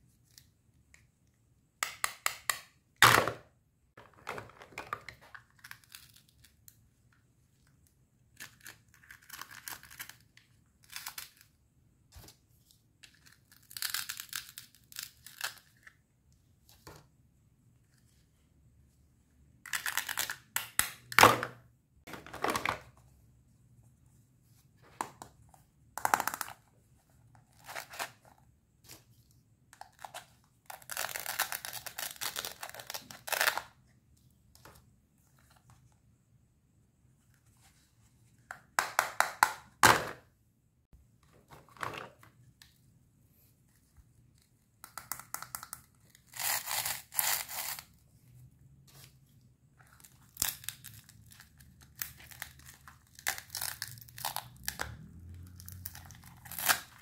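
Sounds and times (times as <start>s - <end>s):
velcro tearing: 46.3s - 47.9s.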